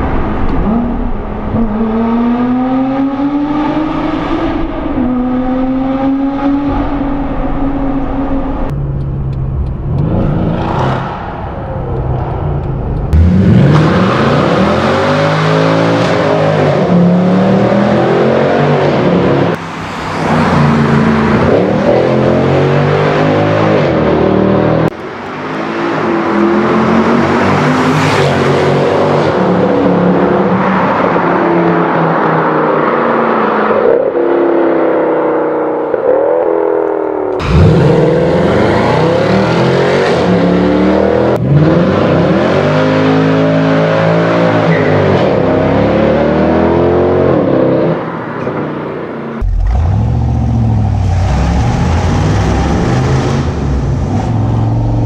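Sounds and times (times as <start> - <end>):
car engine inside cabin: 0.0 - 16.0
car engines accelerating in tunnel: 0.0 - 55.0.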